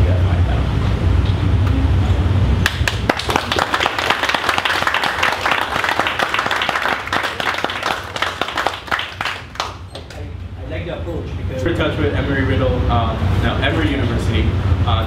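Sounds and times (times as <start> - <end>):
audience applauding: 2.6 - 10.2.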